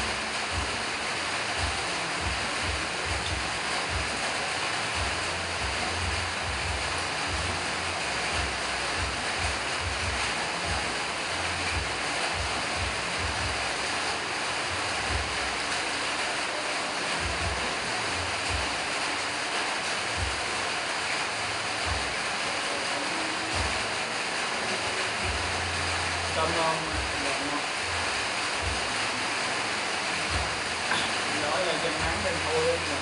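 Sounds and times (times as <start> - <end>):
steady rushing hiss: 0.0 - 33.0
irregular low thumps: 28.6 - 28.9.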